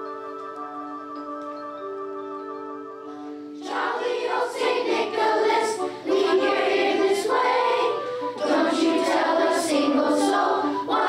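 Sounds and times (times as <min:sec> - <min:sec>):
instrumental accompaniment: 0:00.0 - 0:11.0
children's choir singing: 0:03.6 - 0:11.0.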